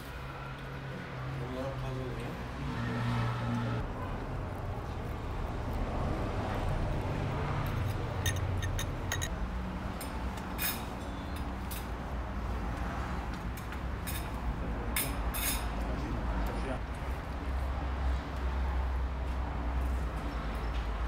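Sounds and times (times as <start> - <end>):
cutlery clinking on plates: 7.8 - 9.3.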